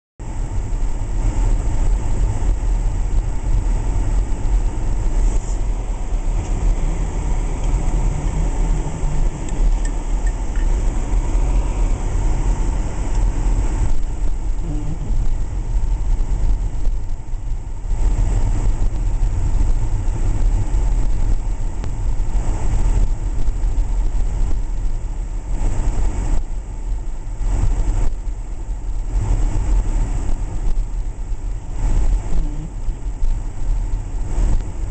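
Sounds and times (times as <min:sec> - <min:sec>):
engine and tyres rumbling on snow: 0:00.2 - 0:34.9
road noise hiss: 0:00.2 - 0:34.9.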